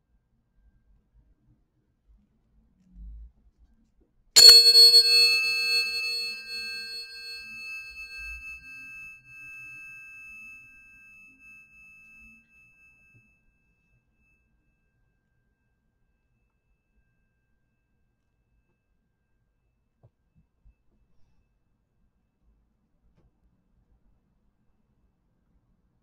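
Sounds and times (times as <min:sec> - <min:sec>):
tuning forks ringing: 0:04.4 - 0:09.0.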